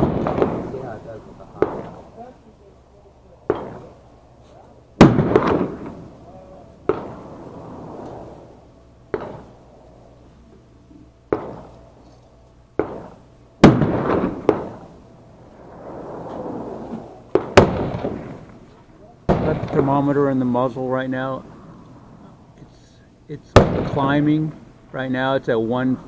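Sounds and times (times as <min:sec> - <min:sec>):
gunshots with echo: 0:00.0 - 0:02.2, 0:03.5 - 0:04.0, 0:05.0 - 0:08.5, 0:09.1 - 0:09.6, 0:11.3 - 0:11.8, 0:12.8 - 0:18.7, 0:19.3 - 0:20.9, 0:23.5 - 0:24.6.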